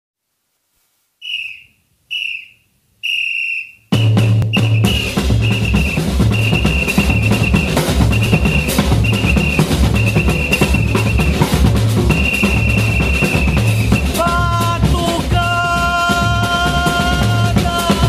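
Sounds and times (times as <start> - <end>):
whistle blasts: 1.2 - 14.8
samba drums: 3.9 - 18.0.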